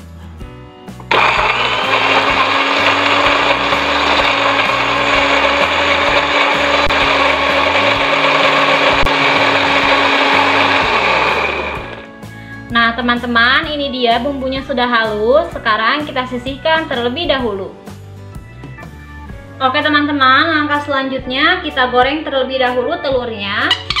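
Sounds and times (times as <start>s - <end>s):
electric blender running: 1.0s - 12.1s.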